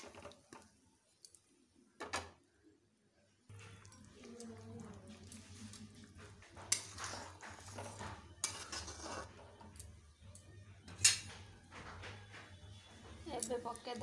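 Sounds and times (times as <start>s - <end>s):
metal spatula scraping a wok: 6.6s - 9.8s.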